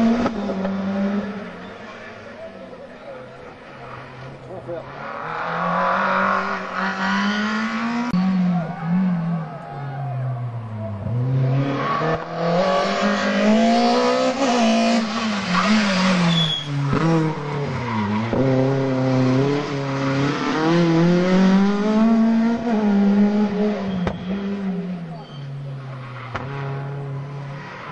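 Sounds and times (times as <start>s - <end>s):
rally car engine revving: 0.0s - 2.3s, 3.6s - 27.9s
brief high squeal: 16.3s - 16.7s, 25.2s - 25.5s.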